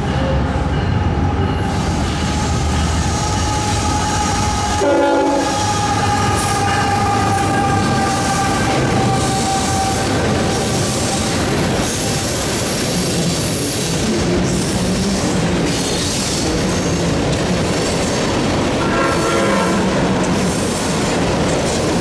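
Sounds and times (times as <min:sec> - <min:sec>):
freight train engine and rail rumble: 0:00.0 - 0:22.0.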